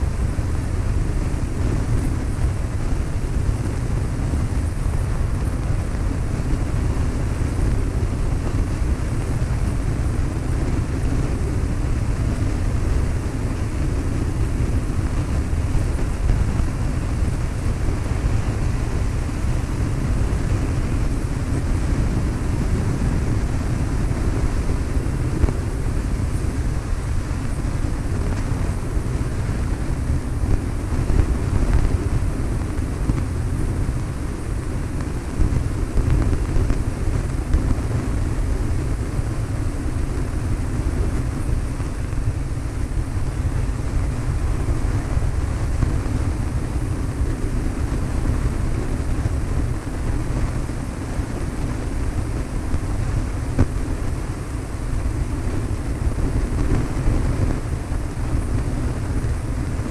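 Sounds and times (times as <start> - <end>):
airplane engine and propeller drone: 0.0 - 59.9
wind noise on microphone: 0.0 - 59.9.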